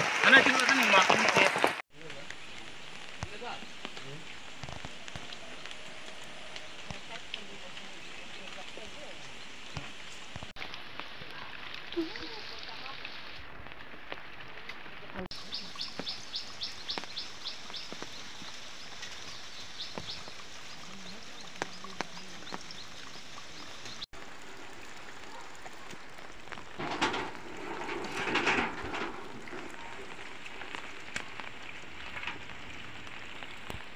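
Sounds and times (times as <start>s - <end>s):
rain falling: 0.0s - 33.9s
bird chirping: 15.4s - 24.1s.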